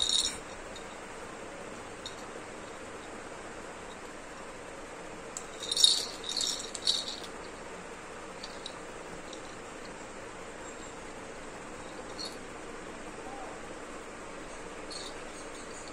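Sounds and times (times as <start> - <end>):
plastic rattle shaking: 0.0 - 0.9, 5.4 - 7.4, 8.4 - 9.5, 11.9 - 12.4, 14.9 - 15.9.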